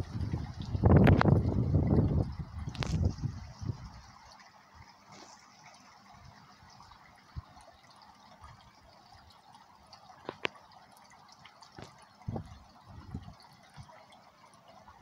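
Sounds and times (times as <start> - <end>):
water trickling and dripping: 0.0 - 15.0.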